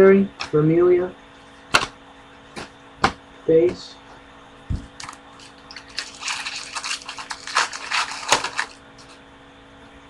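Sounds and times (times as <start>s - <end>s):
wrapper crackling and rustling: 5.3s - 9.2s.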